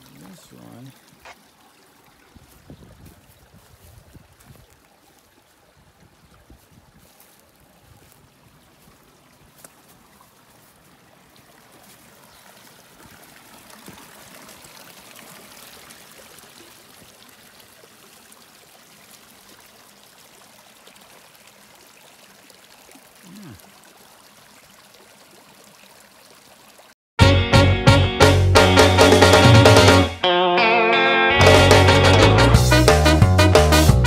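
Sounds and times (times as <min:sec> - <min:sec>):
water trickling: 0:00.0 - 0:27.0.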